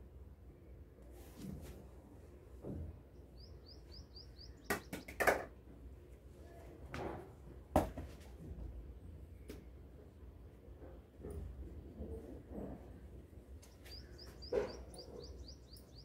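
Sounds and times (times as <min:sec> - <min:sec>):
small bird chirping: 0:03.3 - 0:05.2, 0:13.6 - 0:16.0.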